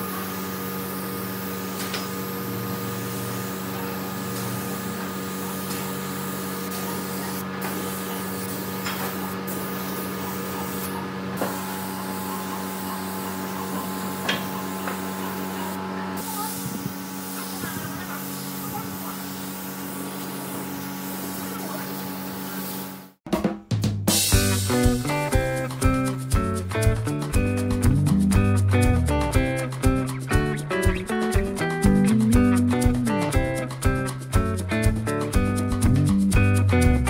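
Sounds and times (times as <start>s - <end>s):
spray gun hissing: 0.0s - 23.1s.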